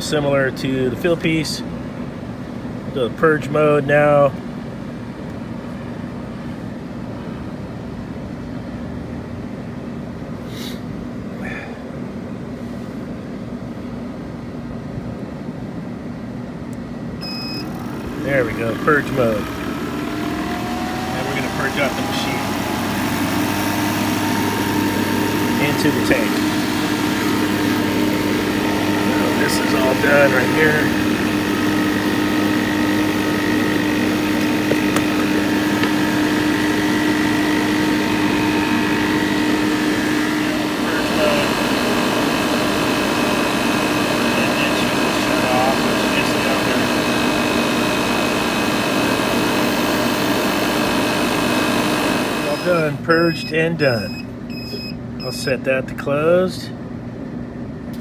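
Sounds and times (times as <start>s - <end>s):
refrigerant recovery machine humming: 17.1s - 58.0s.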